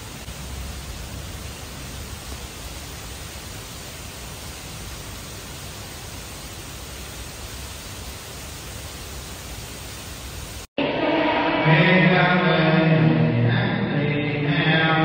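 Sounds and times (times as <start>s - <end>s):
steady rain falling: 0.0s - 10.7s.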